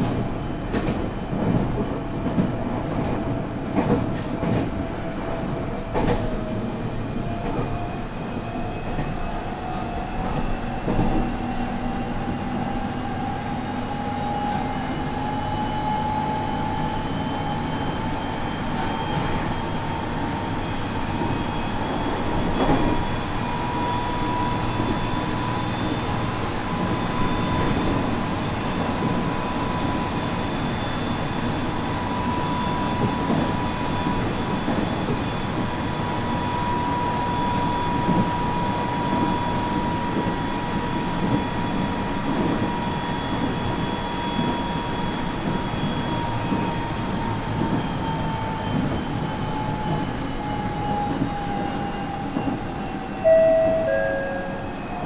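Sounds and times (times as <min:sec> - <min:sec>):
train wheels rumbling on rail: 0:00.0 - 0:55.0.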